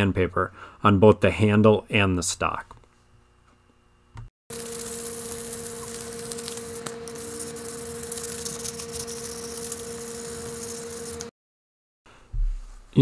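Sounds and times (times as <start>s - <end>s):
steady hum: 4.5s - 11.3s.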